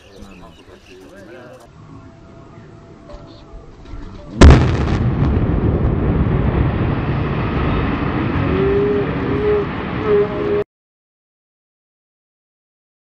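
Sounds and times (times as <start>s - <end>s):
heavy rumble of collapse: 3.6s - 10.6s
explosion blast: 4.0s - 10.6s.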